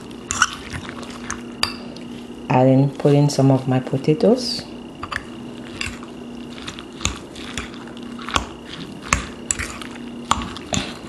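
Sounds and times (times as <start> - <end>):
faint steady hum: 0.0 - 11.0
soft squelching stirring: 0.0 - 11.0.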